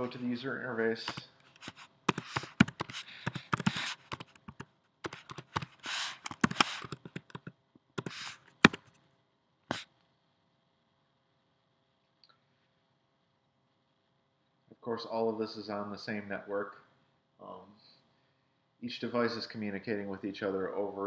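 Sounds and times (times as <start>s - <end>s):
typing on computer keyboard: 1.1s - 8.9s.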